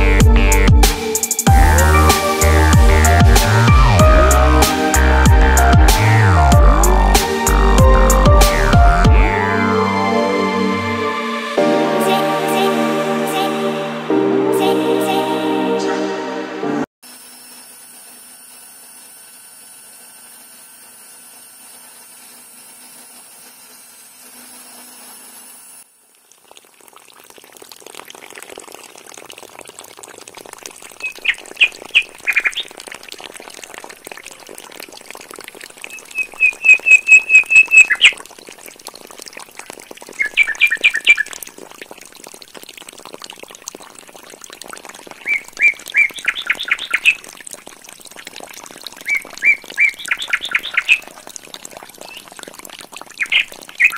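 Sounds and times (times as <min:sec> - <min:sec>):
small motor humming: 0:17.0 - 0:26.2
water splashing: 0:26.0 - 0:53.9
birds chirping: 0:35.9 - 0:38.2, 0:45.2 - 0:47.2, 0:49.1 - 0:51.2.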